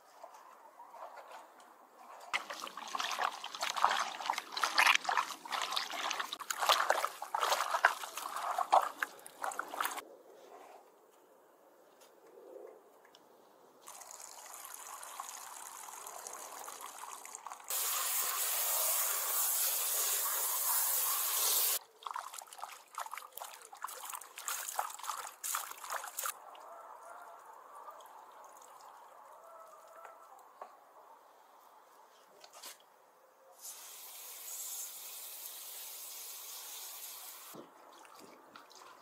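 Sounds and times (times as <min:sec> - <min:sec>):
hose water pouring: 0:02.3 - 0:10.0, 0:13.8 - 0:21.8
wet splashes: 0:02.3 - 0:10.0, 0:13.8 - 0:17.8, 0:21.8 - 0:26.4, 0:37.6 - 0:39.0.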